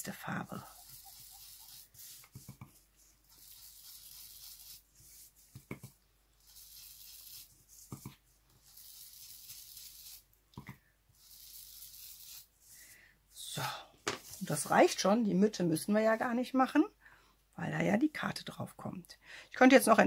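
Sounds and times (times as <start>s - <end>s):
foam pad rubbing on paper: 0.6s - 10.2s, 11.2s - 12.8s.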